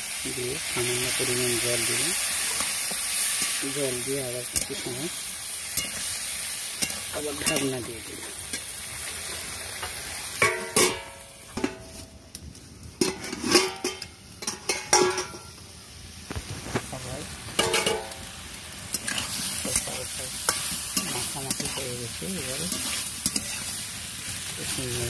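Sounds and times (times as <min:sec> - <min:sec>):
vegetables sizzling in a pan: 0:00.0 - 0:25.0
metal lid and spatula clanking: 0:06.8 - 0:08.7, 0:09.8 - 0:12.0, 0:13.0 - 0:15.5, 0:17.6 - 0:18.3
spatula scraping a pan: 0:18.9 - 0:23.9.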